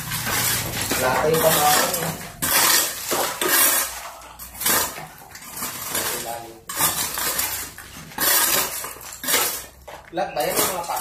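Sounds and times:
metal tool striking concrete: 0.0s - 11.0s.

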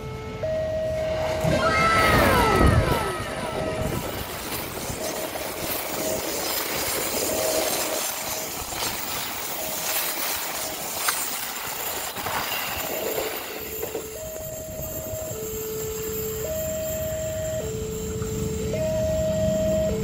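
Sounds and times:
level crossing alarm two-tone: 0.0s - 6.4s, 12.9s - 20.0s
train rumbling on rails: 0.0s - 20.0s.

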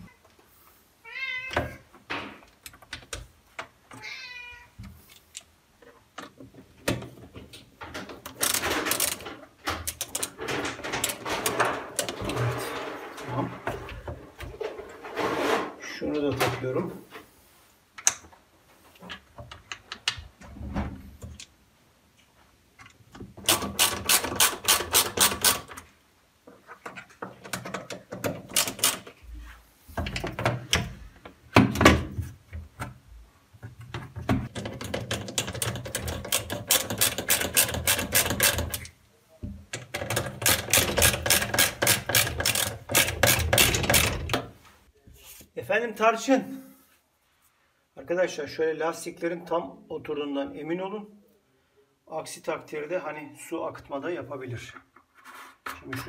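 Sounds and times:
ratcheting screwdriver clicking: 23.4s - 25.8s.

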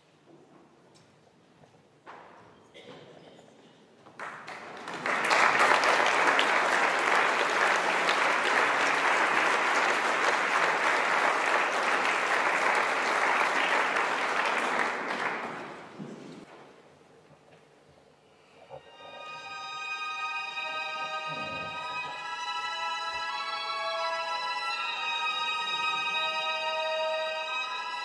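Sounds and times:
audience applauding: 4.2s - 16.4s.

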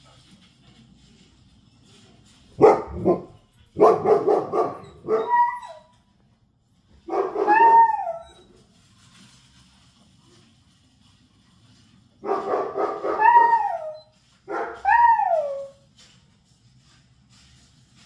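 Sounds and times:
dog barking on tv: 2.5s - 5.8s, 7.0s - 8.2s, 12.2s - 15.6s
dog howling bark: 2.6s - 5.8s, 7.1s - 8.3s, 12.2s - 15.8s
dogs barking: 2.6s - 5.8s, 7.0s - 8.2s, 12.2s - 15.6s.

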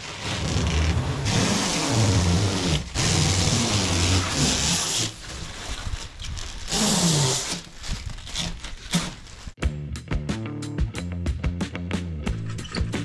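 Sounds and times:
plastic film tearing off metal: 0.0s - 9.6s.

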